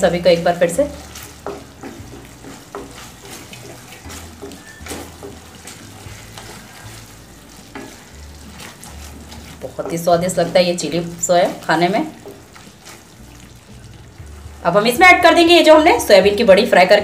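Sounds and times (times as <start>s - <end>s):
wooden spatula scraping pan: 0.0s - 15.9s
vegetables sizzling in wok: 0.0s - 17.0s.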